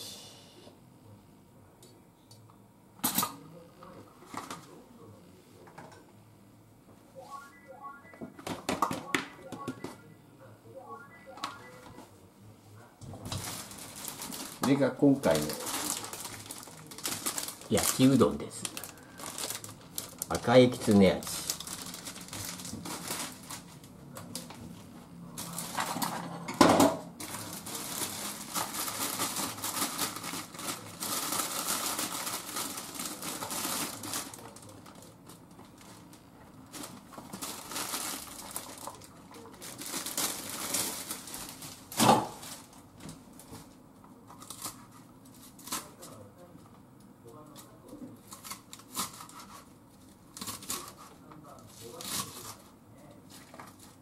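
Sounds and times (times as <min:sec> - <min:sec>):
plastic bag crinkling: 0:13.2 - 0:24.5, 0:27.2 - 0:42.9.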